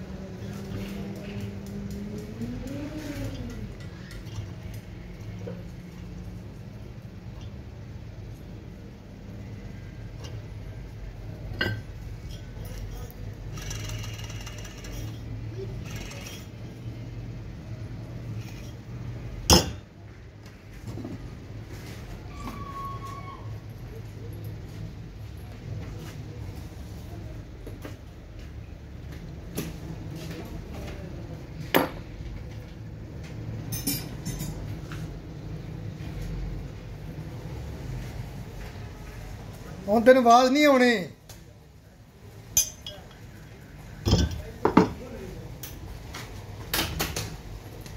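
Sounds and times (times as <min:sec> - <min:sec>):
metal parts clinking on workbench: 0:33.7 - 0:34.6, 0:42.6 - 0:43.2.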